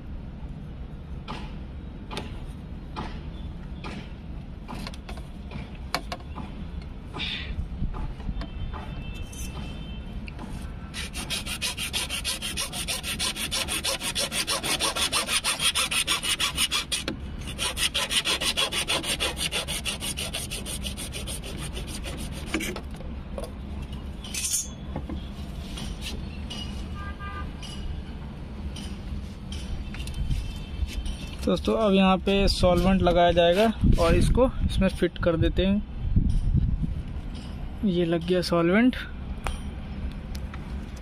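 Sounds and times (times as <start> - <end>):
hacksaw sawing plastic pipe: 10.9 - 22.8.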